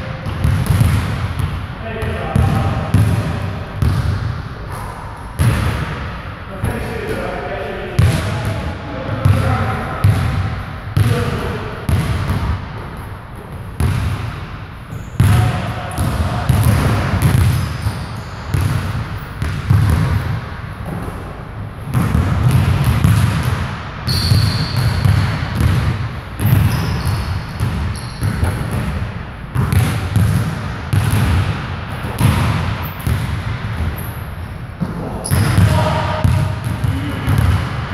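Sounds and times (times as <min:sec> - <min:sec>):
basketballs bouncing on hardwood: 0:00.2 - 0:04.3, 0:05.4 - 0:06.0, 0:09.2 - 0:10.4, 0:11.0 - 0:12.6, 0:13.8 - 0:14.4, 0:15.2 - 0:21.1, 0:21.9 - 0:34.0, 0:34.8 - 0:37.8.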